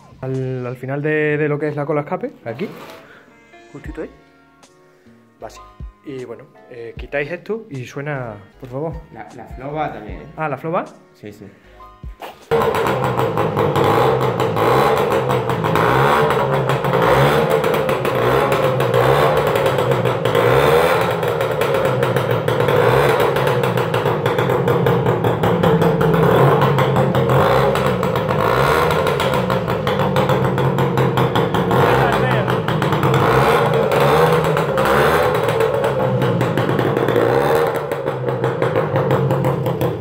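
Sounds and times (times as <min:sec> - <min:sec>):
moped two-stroke engine revving: 0:12.1 - 0:40.0.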